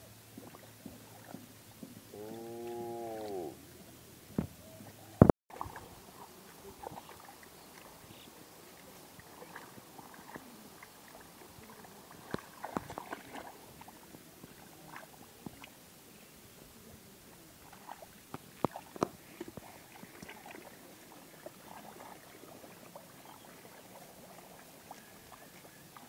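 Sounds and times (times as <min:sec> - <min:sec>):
hands sloshing in muddy water: 0:05.5 - 0:15.8, 0:17.4 - 0:26.0.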